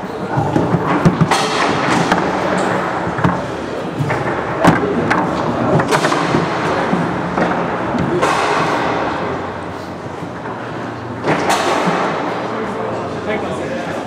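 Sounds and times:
room noise: 0:00.0 - 0:14.0
foosball figures striking ball: 0:00.2 - 0:09.7, 0:11.2 - 0:12.5.

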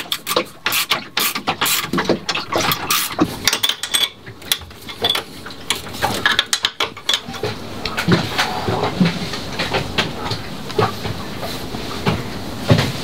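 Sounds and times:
metal tools clicking and clanking: 0:00.0 - 0:07.6.

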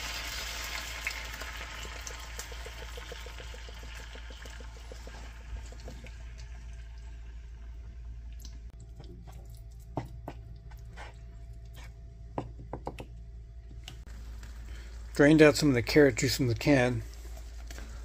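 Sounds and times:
liquid pouring into pan: 0:00.0 - 0:07.6
steady low hum: 0:01.4 - 0:18.0
wooden spoon stirring: 0:08.9 - 0:12.0.

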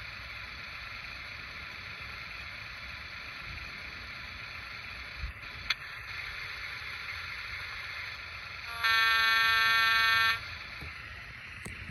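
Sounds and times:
steady background hiss: 0:00.0 - 0:11.9
model train horn: 0:08.7 - 0:10.5.

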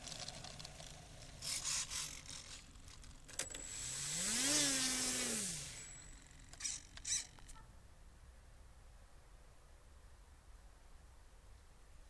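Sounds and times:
electric motor spinning propeller: 0:00.0 - 0:07.5
high whine from speed controller: 0:00.0 - 0:07.6.

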